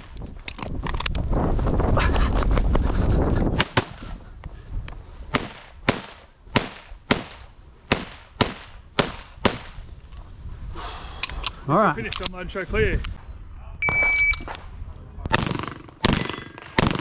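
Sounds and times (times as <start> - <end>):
pistol shots: 15.3 - 17.0.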